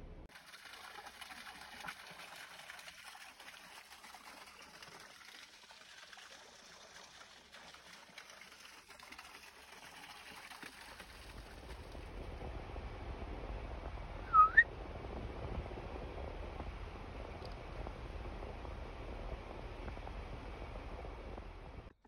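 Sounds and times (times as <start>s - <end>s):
faint waterfall trickle: 0.3s - 14.2s.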